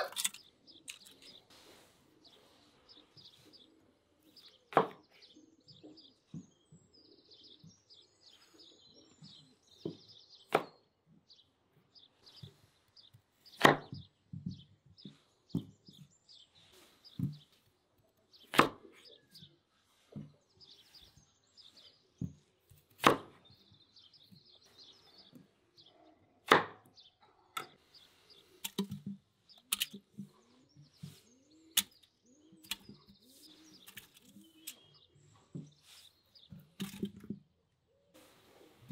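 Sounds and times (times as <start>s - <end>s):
birds chirping: 0.0s - 38.9s
knife chopping on wooden board: 13.6s - 14.0s, 18.4s - 18.8s, 22.2s - 23.4s, 26.5s - 26.9s.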